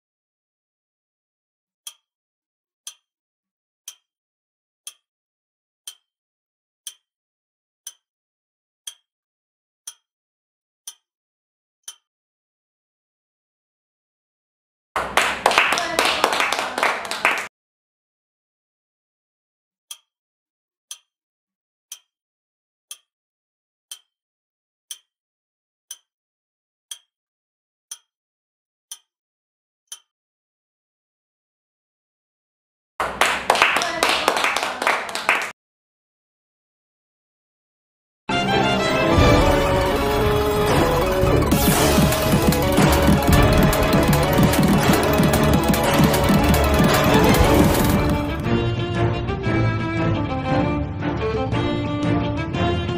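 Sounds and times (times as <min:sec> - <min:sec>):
clock ticking: 0:02.8 - 0:03.0, 0:06.8 - 0:07.0, 0:20.9 - 0:21.1, 0:24.9 - 0:25.1, 0:39.2 - 0:48.5.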